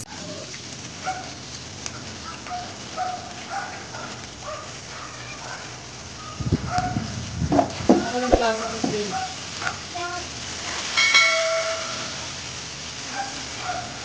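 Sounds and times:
food sizzling in oil: 0.0s - 14.0s
dog barking: 1.0s - 1.4s, 2.2s - 7.1s, 9.0s - 9.9s, 13.0s - 14.0s.

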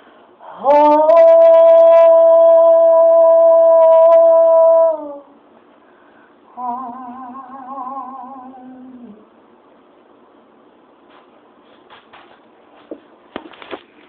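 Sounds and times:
woman singing unaccompanied: 0.4s - 5.4s, 6.5s - 9.4s.

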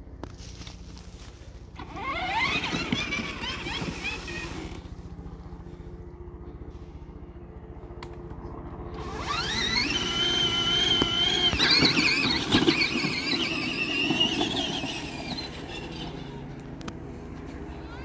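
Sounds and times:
electric motor whining: 1.7s - 5.3s, 8.9s - 16.9s.

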